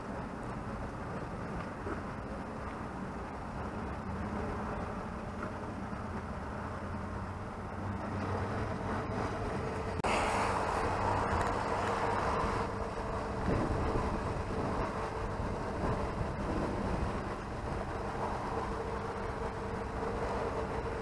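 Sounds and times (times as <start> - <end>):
boat engine humming: 0.0 - 21.0
water moving around hull: 0.0 - 21.0
loud rushing noise: 8.3 - 19.2.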